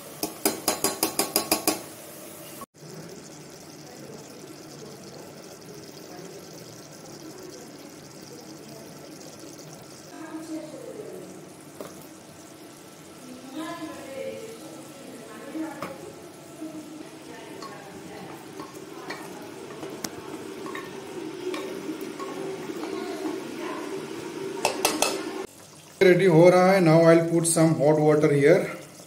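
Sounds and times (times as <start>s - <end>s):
curry sizzling: 0.0s - 29.0s
steel bowl rapping on metal rim: 0.2s - 1.8s, 17.6s - 25.5s.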